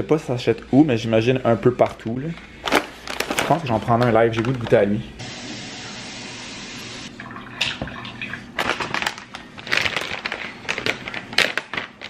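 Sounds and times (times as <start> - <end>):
plastic pouch crinkling: 2.6 - 5.0, 8.6 - 12.0
water running from a tap: 5.2 - 8.5.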